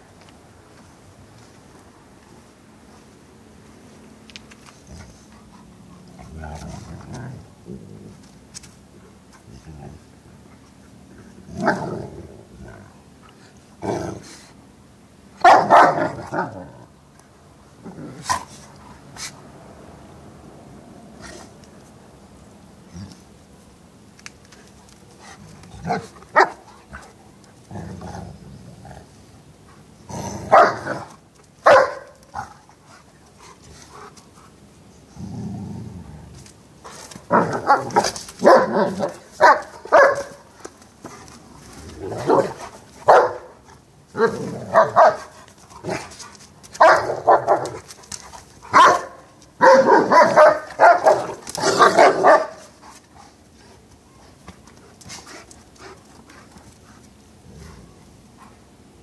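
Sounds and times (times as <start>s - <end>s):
dog growling: 6.0s - 8.2s, 13.8s - 14.4s, 35.2s - 36.3s
dogs barking: 15.4s - 16.4s, 25.9s - 26.6s, 30.5s - 32.5s, 37.3s - 40.5s, 42.2s - 43.6s, 44.2s - 45.3s, 46.8s - 47.8s, 48.7s - 52.7s.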